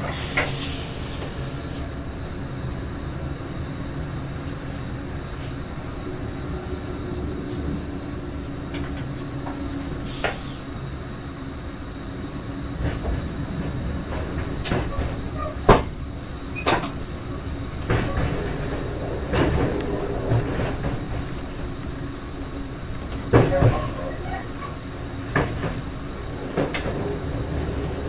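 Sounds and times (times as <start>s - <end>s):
train rumble: 0.0s - 28.0s
wheels knocking on rail joints: 12.8s - 28.0s
high squeal: 14.7s - 28.0s.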